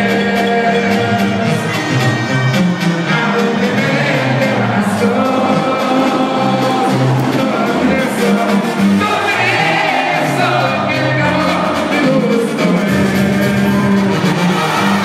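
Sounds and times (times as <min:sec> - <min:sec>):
brass band playing: 0:00.0 - 0:15.0
man singing: 0:03.0 - 0:15.0.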